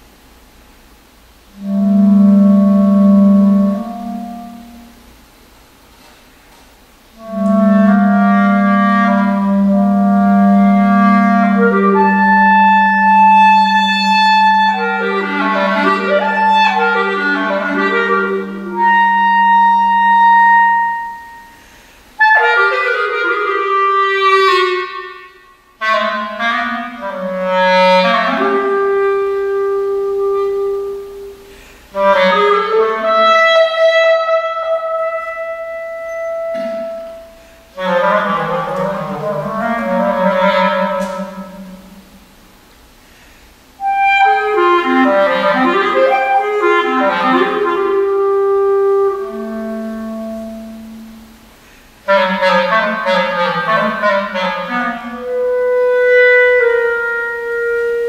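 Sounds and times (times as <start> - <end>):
clarinet playing: 1.4 - 5.2, 7.1 - 42.6, 43.6 - 58.0
low electronic tone: 35.0 - 37.4.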